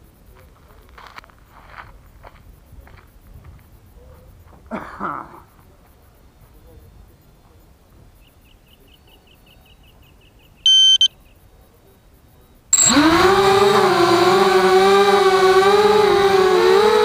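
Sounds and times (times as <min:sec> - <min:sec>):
loud electronic beep: 0:10.7 - 0:11.1, 0:12.8 - 0:13.7
drone motors running: 0:12.8 - 0:17.0.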